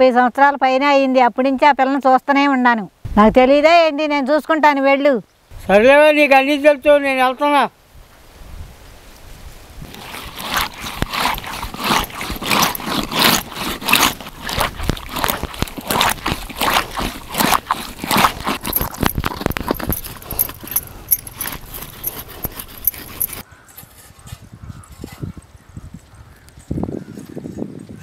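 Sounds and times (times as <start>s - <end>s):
fish rasping against rough stone: 9.8s - 24.2s.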